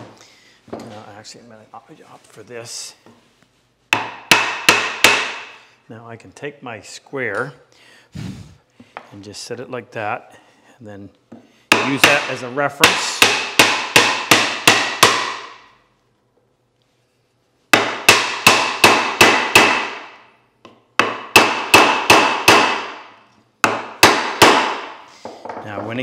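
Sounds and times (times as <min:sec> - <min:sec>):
sharp knocks on wooden board: 0:03.9 - 0:05.5, 0:11.7 - 0:15.6, 0:17.8 - 0:20.1, 0:21.0 - 0:23.0, 0:23.6 - 0:25.6.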